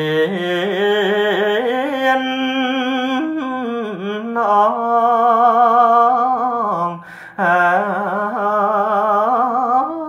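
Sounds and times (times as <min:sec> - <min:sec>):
man chanting melodically: 0:00.0 - 0:10.0.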